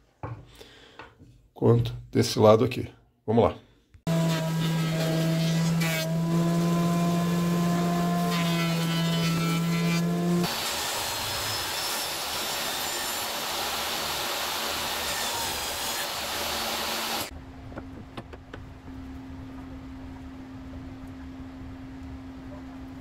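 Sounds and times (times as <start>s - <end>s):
jointer humming: 4.1s - 17.3s
table saw cutting wood: 4.1s - 17.3s.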